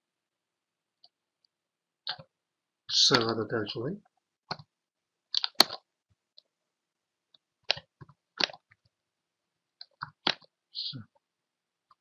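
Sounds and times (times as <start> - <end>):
keyboard and mouse clicks: 2.1 - 2.3, 4.5 - 4.7, 5.3 - 6.5, 7.6 - 8.9, 9.8 - 10.5.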